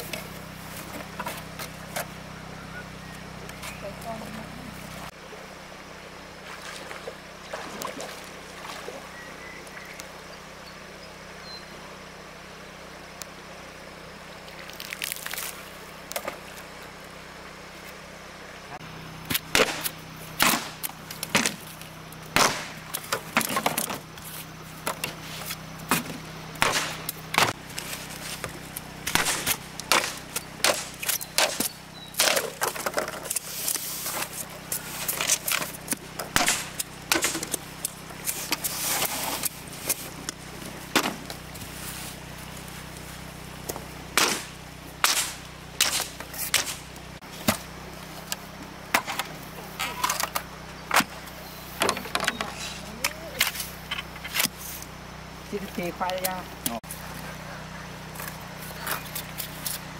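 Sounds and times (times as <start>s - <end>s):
bamboo cracking knocks: 25.9s - 33.4s.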